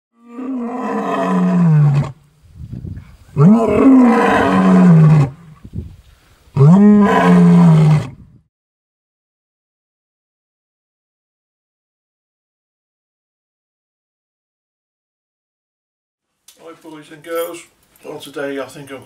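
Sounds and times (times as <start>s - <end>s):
big cat roaring: 0.2s - 2.2s, 3.3s - 5.6s, 6.6s - 8.3s
soft low growls: 2.8s - 5.7s.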